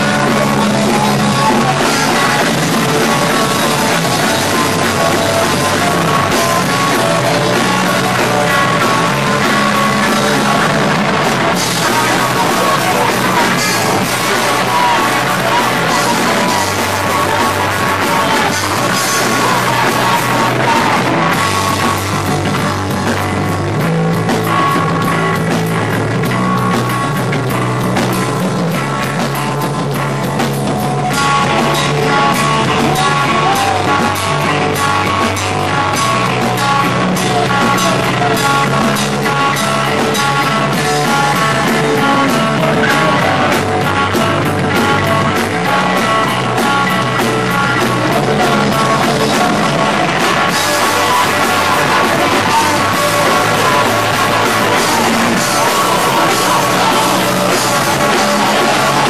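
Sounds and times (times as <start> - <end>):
bass guitar: 0.0 - 59.0
distorted electric guitars: 0.0 - 59.0
drum kit: 0.0 - 59.0.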